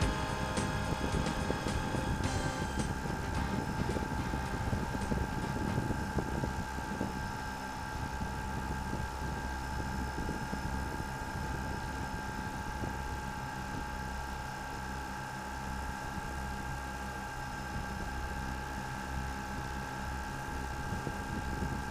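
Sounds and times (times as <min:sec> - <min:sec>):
drone rotors whining: 0:00.0 - 0:07.1
low noisy hum: 0:00.0 - 0:21.9.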